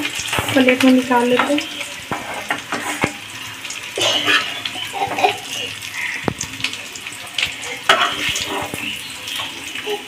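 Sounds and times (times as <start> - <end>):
spoon scraping and tapping pan: 0.0 - 3.2, 4.0 - 5.4, 7.4 - 9.5
oil sizzling: 0.0 - 10.0.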